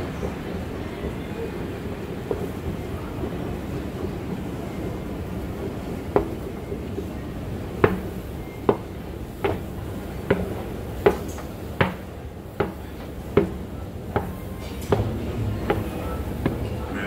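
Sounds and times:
sharp knocks on metal escalator: 7.8s - 17.0s
low steady hum: 14.8s - 17.0s.

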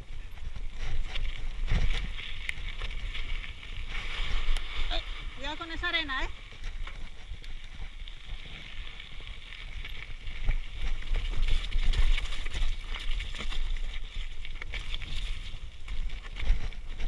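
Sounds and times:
bike rattling and clattering: 0.0s - 17.0s
tyres crunching over gravel: 0.0s - 17.0s.

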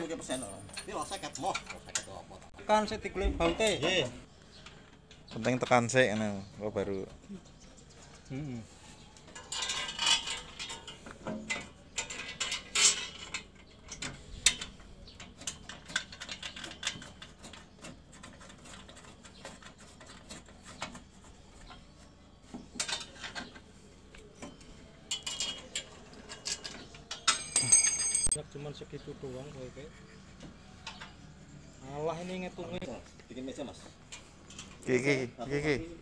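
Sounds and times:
metal clinks and scrapes of tools: 0.0s - 2.4s, 9.2s - 21.0s, 22.6s - 28.4s.

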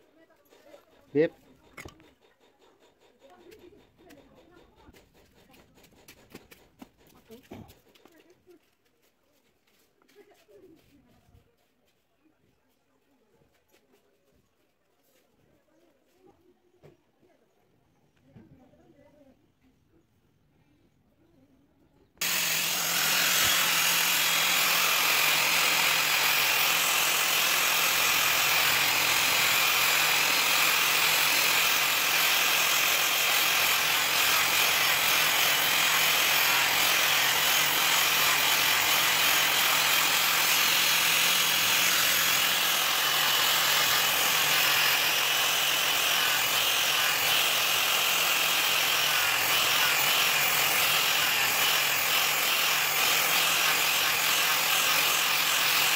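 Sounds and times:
angle grinder grinding steel: 22.2s - 55.9s.

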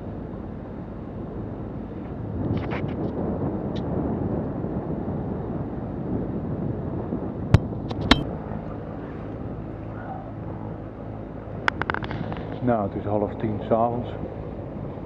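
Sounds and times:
wind on microphone: 0.0s - 15.0s
sharp knocks: 7.6s - 8.3s.

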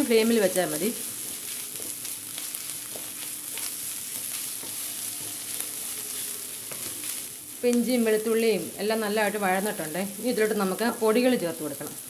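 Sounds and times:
onions sizzling in oil: 0.0s - 12.0s
wooden spatula stirring and scraping: 0.1s - 7.7s.

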